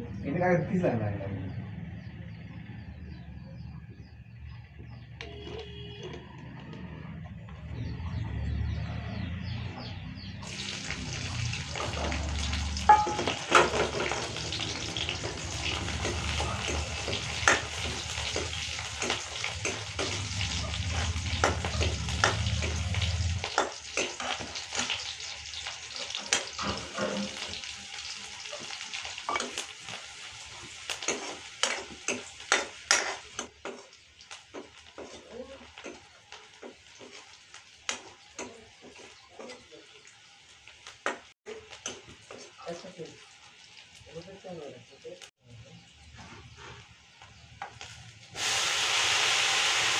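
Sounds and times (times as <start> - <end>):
chillies sizzling in oil: 4.9 - 49.9
metal spoon scraping pan: 12.9 - 27.7, 30.6 - 36.0.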